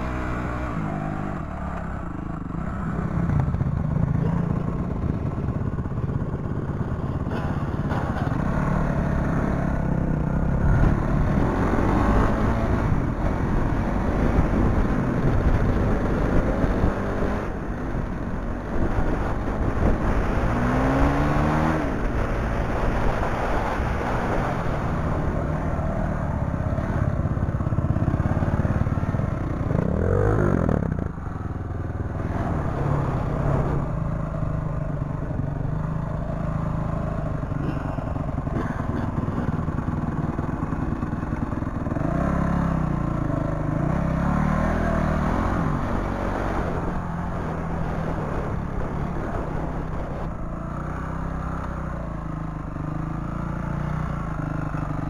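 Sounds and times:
motorcycle engine revving: 0.0s - 55.0s
rushing wind noise: 9.6s - 36.4s.

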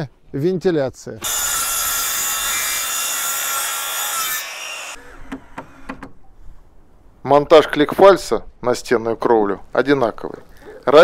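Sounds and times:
circular saw cutting wood: 1.2s - 5.9s.

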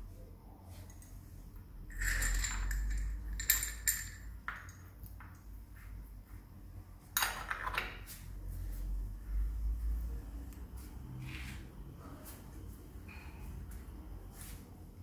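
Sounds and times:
spanner clinking on metal: 1.9s - 4.9s.

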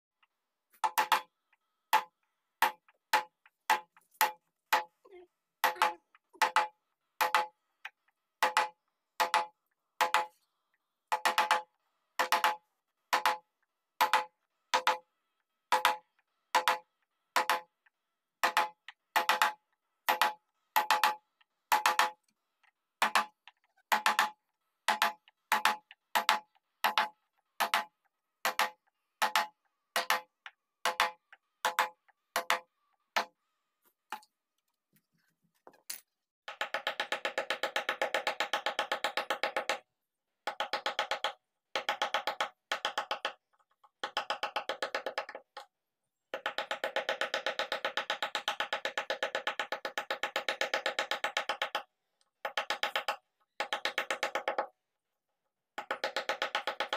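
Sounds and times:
mallet striking chisel: 0.8s - 1.3s, 1.9s - 4.9s, 5.6s - 7.6s, 8.4s - 10.4s, 11.1s - 13.4s, 14.0s - 15.0s, 18.4s - 22.2s, 23.0s - 33.3s.

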